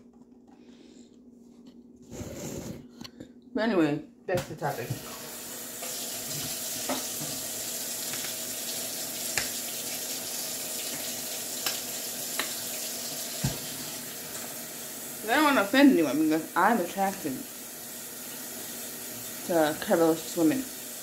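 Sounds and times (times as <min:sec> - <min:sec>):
tap running into sink: 0:04.8 - 0:08.4, 0:09.2 - 0:14.6.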